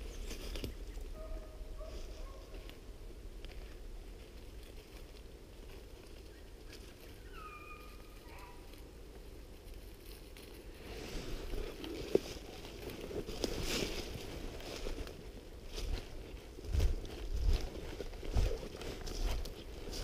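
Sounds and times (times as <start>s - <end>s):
distant animal call: 7.1s - 8.7s
footsteps crunching through leaves: 10.6s - 20.0s.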